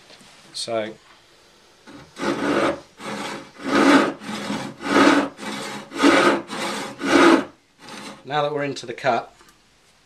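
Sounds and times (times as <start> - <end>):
saw rasping through wood: 1.9 - 8.2.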